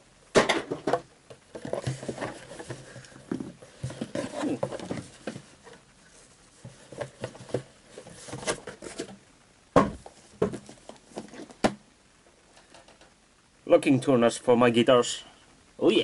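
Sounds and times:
cardboard boxes rustling and scraping: 0:00.8 - 0:09.2, 0:09.9 - 0:11.8.

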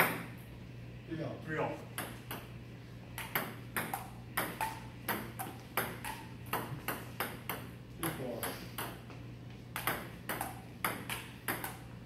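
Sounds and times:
table tennis ball hitting paddles: 0:00.0 - 0:00.3, 0:01.9 - 0:02.5, 0:03.2 - 0:11.9
low room hum: 0:00.0 - 0:12.0
ball bouncing on table: 0:03.2 - 0:09.1, 0:09.7 - 0:11.8.

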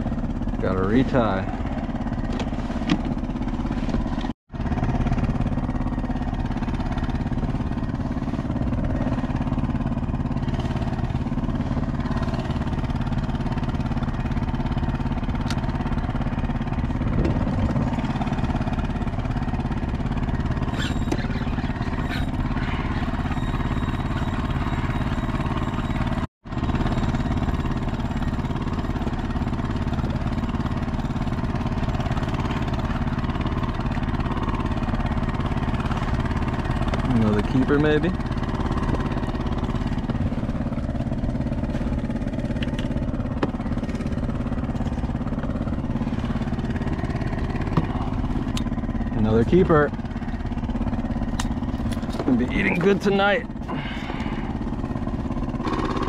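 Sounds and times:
low engine-like drone: 0:00.0 - 0:56.0.

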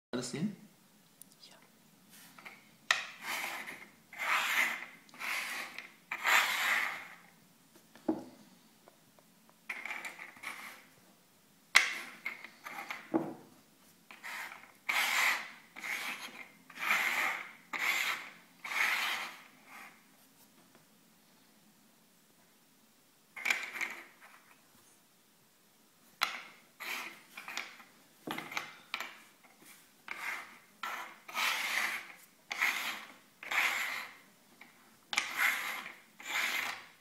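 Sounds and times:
shells scraping on wooden table: 0:02.2 - 0:07.4, 0:09.7 - 0:11.0, 0:11.8 - 0:13.4, 0:14.1 - 0:20.1, 0:23.4 - 0:24.6, 0:26.2 - 0:37.0.

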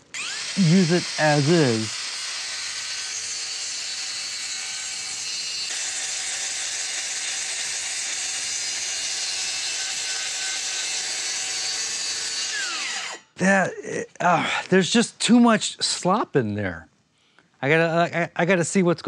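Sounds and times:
circular saw cutting board: 0:00.0 - 0:13.3.

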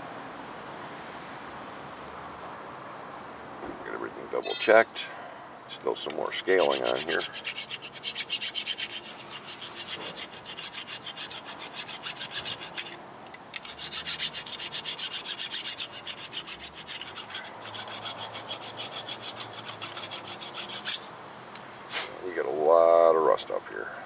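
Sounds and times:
tool scraping rust off metal: 0:04.4 - 0:05.1, 0:05.9 - 0:21.1.

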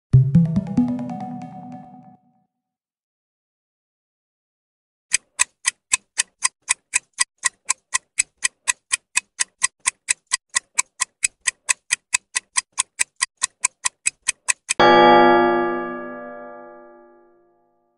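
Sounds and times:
clock-like timer ticking: 0:05.1 - 0:14.8.

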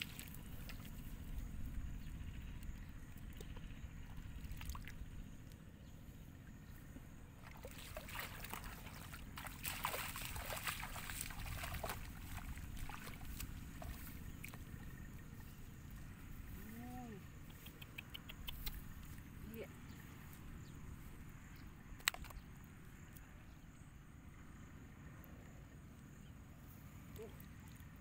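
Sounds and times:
muddy water splashing: 0:00.0 - 0:05.3, 0:07.3 - 0:16.8
low steady rumble: 0:00.0 - 0:28.0.

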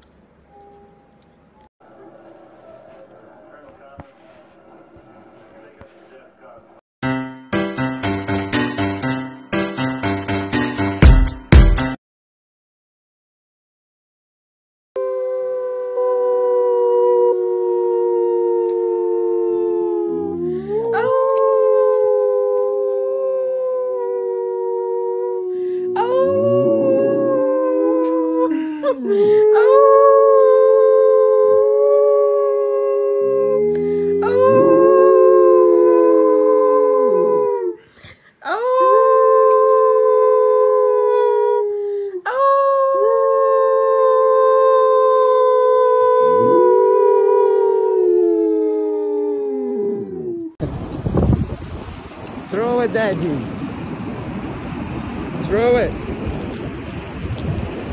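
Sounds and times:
dog howling: 0:15.0 - 0:37.8, 0:38.5 - 0:41.7, 0:42.3 - 0:50.6.

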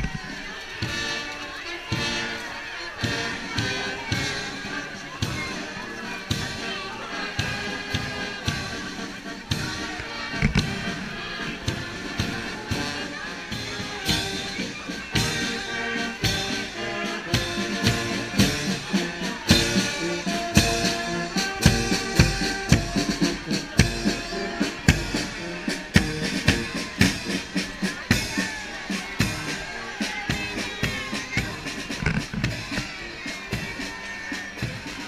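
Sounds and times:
marching brass band playing: 0:00.0 - 0:35.0
bass drum beat: 0:17.4 - 0:34.0.

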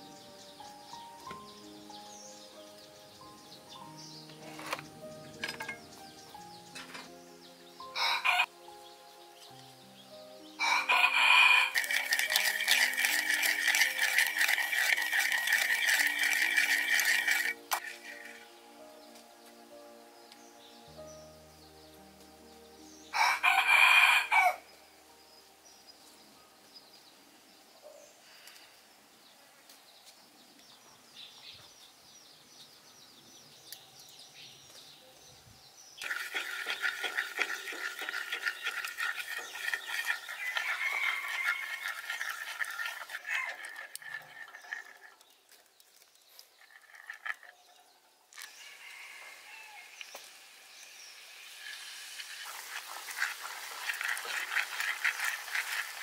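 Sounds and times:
rooster crowing: 0:08.0 - 0:08.5, 0:10.6 - 0:12.0, 0:23.2 - 0:24.6, 0:40.4 - 0:41.8, 0:48.5 - 0:50.0.

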